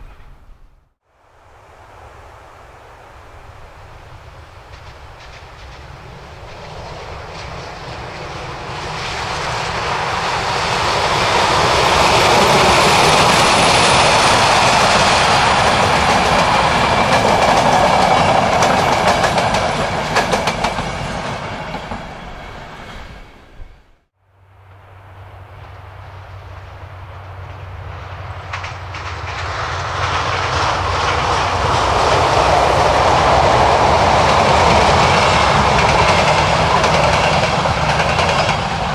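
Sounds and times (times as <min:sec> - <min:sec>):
diesel locomotive engine: 0:03.2 - 0:38.9
train wheels clattering over rail joints: 0:10.9 - 0:22.0, 0:28.4 - 0:38.9.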